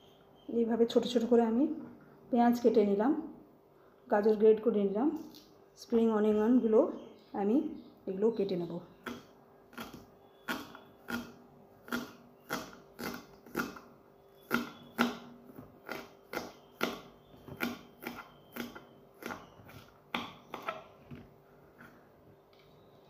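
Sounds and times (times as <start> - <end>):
knife chopping on wooden board: 14.5 - 20.8.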